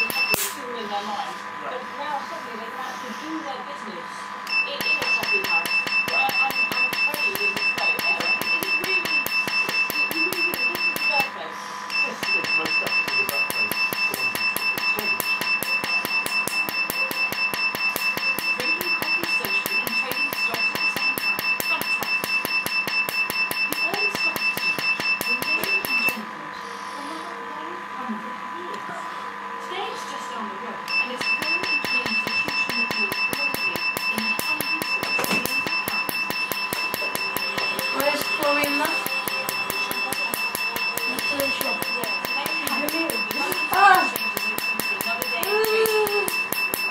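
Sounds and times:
laser pulse snaps: 0:00.0 - 0:00.6
laser snapping pulses: 0:00.0 - 0:00.6, 0:12.3 - 0:26.2, 0:31.0 - 0:46.9
high-pitched tone: 0:11.9 - 0:26.2, 0:30.9 - 0:46.9.

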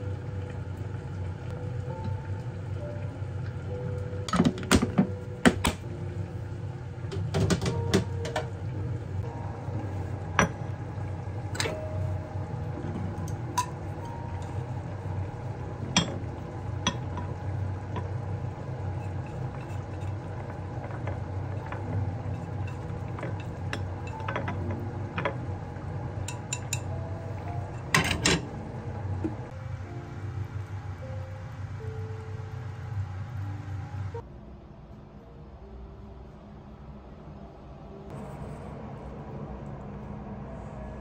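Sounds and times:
steady low hum: 0:00.0 - 0:41.0
chopsticks clinking on pan and plate: 0:26.2 - 0:26.9.

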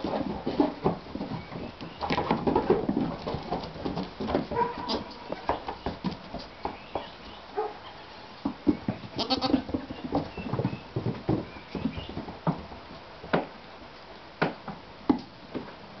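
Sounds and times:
hooves tapping on wooden floorboards: 0:00.0 - 0:07.4, 0:08.4 - 0:13.7
goats bleating: 0:09.2 - 0:09.7.

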